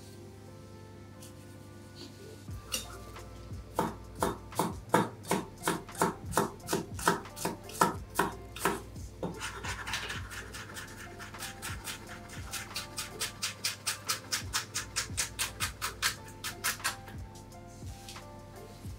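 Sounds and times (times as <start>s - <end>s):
knife chopping on wooden board: 3.8s - 10.4s
knife scraping across board: 8.6s - 13.0s.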